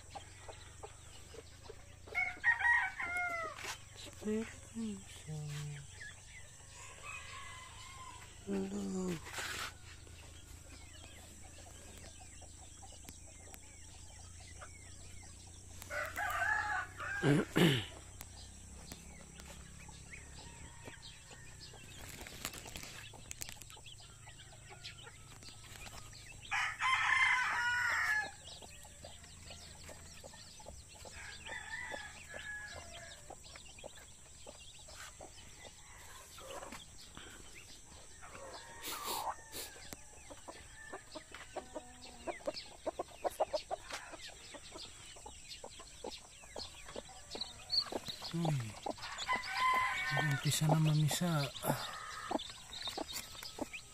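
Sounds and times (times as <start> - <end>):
rooster crowing: 2.1 - 3.7, 6.7 - 8.6, 15.9 - 17.9, 26.5 - 28.5, 31.1 - 33.3, 38.3 - 40.0, 48.4 - 52.4
hen clucking: 38.0 - 53.9.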